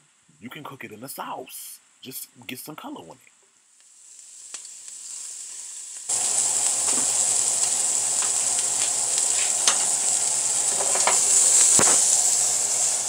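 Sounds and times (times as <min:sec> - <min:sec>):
shrimp sizzling in oil: 0:03.7 - 0:13.0.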